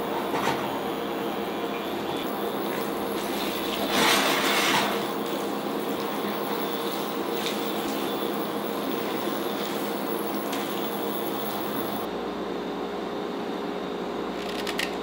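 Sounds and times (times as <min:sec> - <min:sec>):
pasta sizzling in a pan: 0:02.2 - 0:12.1
saucy pasta sloshing: 0:02.2 - 0:12.1.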